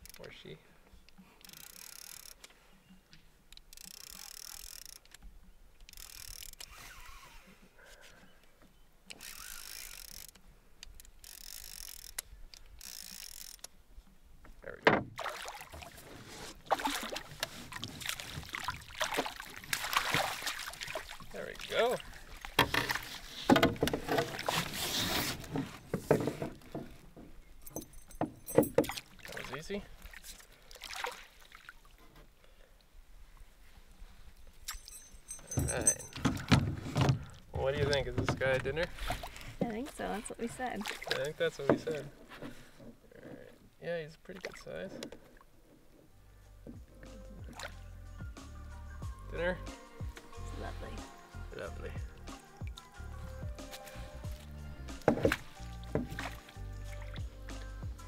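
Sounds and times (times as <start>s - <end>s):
spinning reel drag buzzing: 1.4s - 2.4s, 3.7s - 5.1s, 5.9s - 7.4s, 9.1s - 10.4s, 11.1s - 12.2s, 12.8s - 13.6s
knocks on canoe hull: 14.8s - 15.2s, 22.6s - 24.4s, 55.0s - 56.4s
water splashing: 15.1s - 25.9s, 28.6s - 32.0s, 35.5s - 42.2s, 47.4s - 47.8s, 53.6s - 57.8s.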